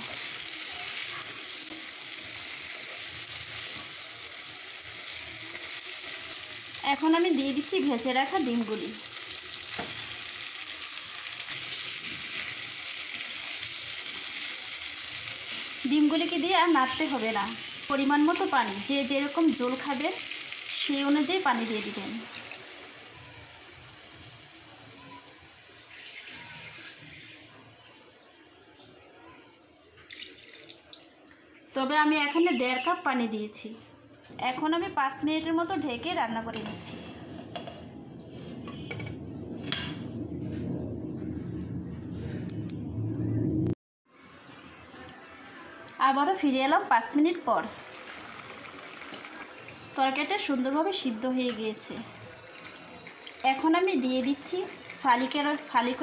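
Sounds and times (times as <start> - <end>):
vegetables sizzling in oil: 0.0 - 27.6, 44.1 - 56.0
curry hissing and bubbling in pan: 0.0 - 29.0, 47.6 - 56.0.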